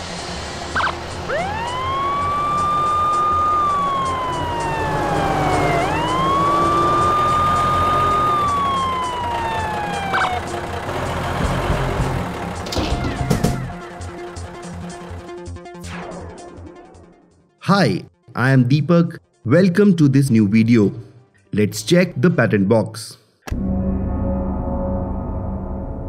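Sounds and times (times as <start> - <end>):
background music with steady beat: 0.0 - 22.4
wailing siren: 0.6 - 15.4.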